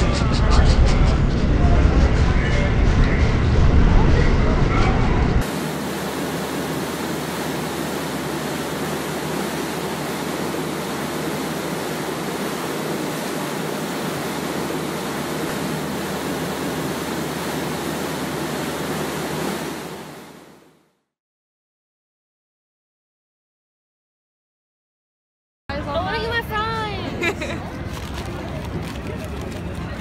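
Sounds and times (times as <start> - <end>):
steady hiss of noise: 5.4 - 20.7.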